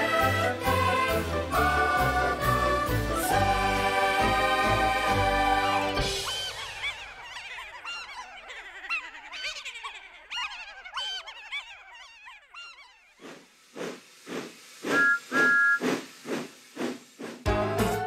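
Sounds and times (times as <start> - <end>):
cartoon voices laughing and cackling: 6.2 - 12.5.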